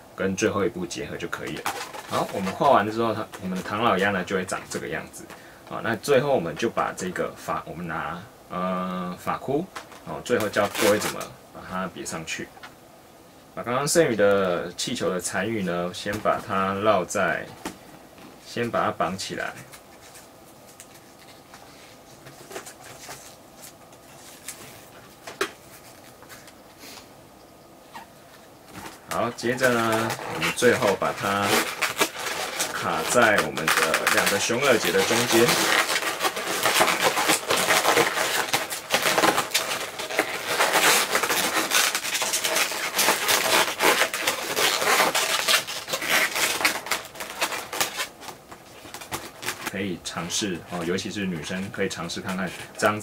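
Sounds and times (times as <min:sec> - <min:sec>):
balloons squeaking and ticking: 0:01.1 - 0:05.2, 0:09.7 - 0:11.3, 0:27.9 - 0:53.0.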